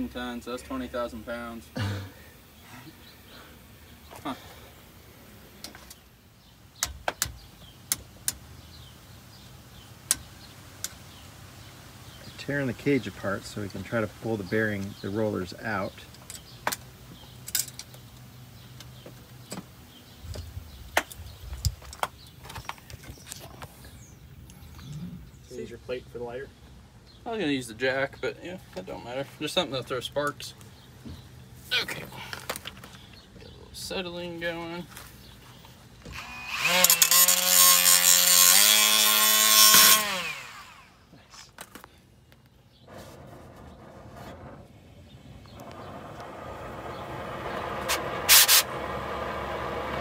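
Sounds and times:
angle grinder grinding steel: 36.1s - 41.0s.

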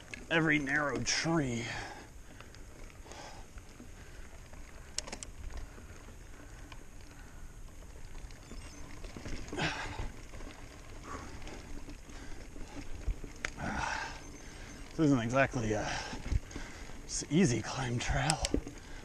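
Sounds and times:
mountain bike low rumble: 0.0s - 19.0s
sharp rattling clicks: 4.9s - 5.3s.

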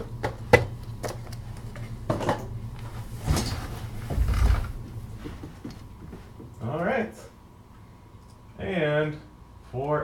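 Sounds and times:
steady low hum: 0.0s - 10.0s
heavy thud: 3.2s - 6.4s.

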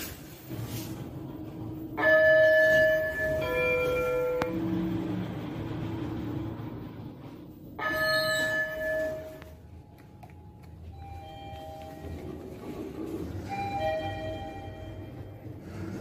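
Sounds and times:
low hum: 0.2s - 16.0s
elevator chime ding: 1.6s - 5.6s, 7.7s - 15.6s.

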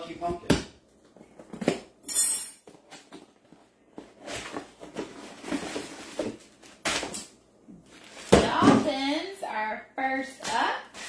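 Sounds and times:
cardboard rustling and scraping: 2.7s - 6.8s.

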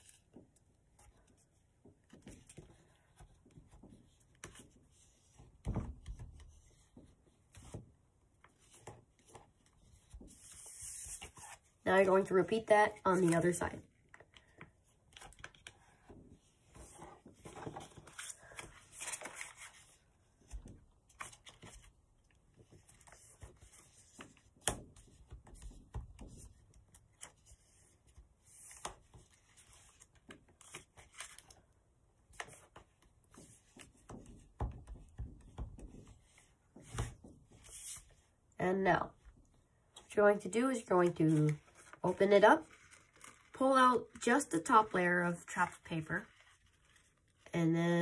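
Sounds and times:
paper rustling: 8.4s - 31.7s, 40.8s - 47.5s.

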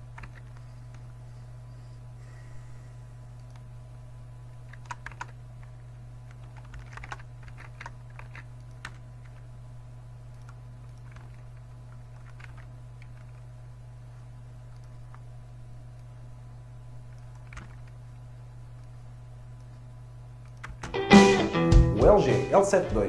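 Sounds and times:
steady low hum: 0.0s - 23.0s
keyboard keystrokes: 0.2s - 0.6s, 4.7s - 5.4s, 6.3s - 9.4s, 10.3s - 13.4s, 17.1s - 18.0s, 20.4s - 21.0s.

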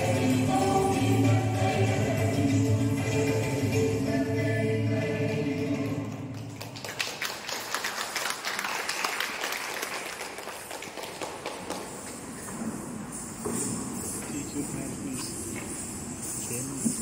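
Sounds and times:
choir singing: 0.0s - 6.3s
audience applause: 6.3s - 12.1s.

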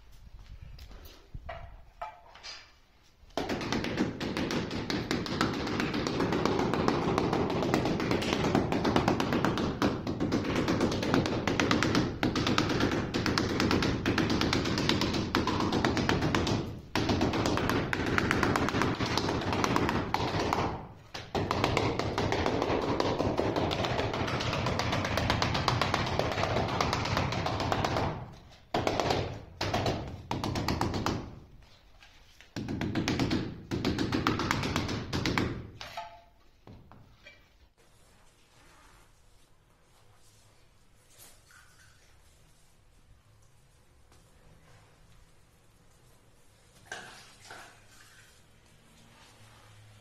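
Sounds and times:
rubber mallet tapping on tiles: 3.4s - 31.4s.

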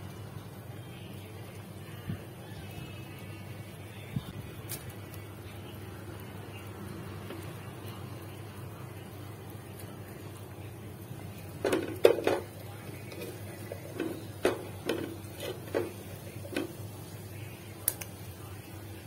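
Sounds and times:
knocks and clinks on metal pot: 11.6s - 12.5s.

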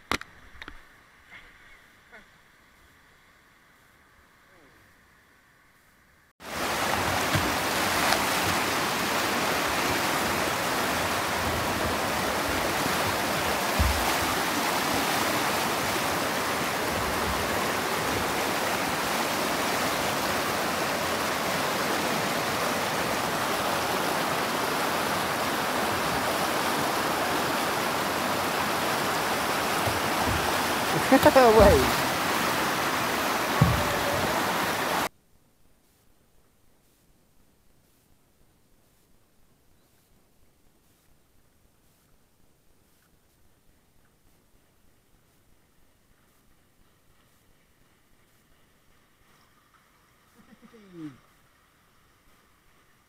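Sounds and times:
rushing river rapids: 6.4s - 35.1s.

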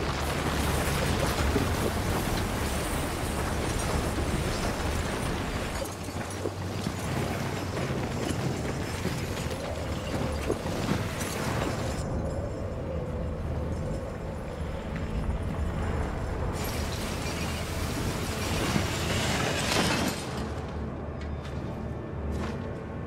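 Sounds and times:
iron chains grinding and clanking: 2.4s - 14.4s
low steady drone: 6.9s - 19.2s.

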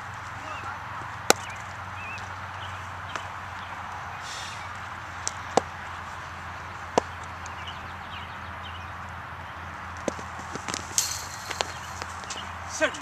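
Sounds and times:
steady background noise: 0.0s - 13.0s
cricket ball knocks: 6.9s - 7.3s.

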